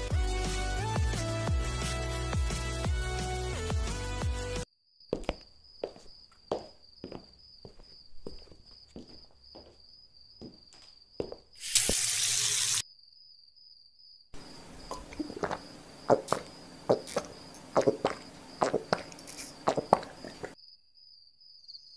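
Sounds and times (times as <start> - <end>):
person gulping water: 14.6 - 20.6.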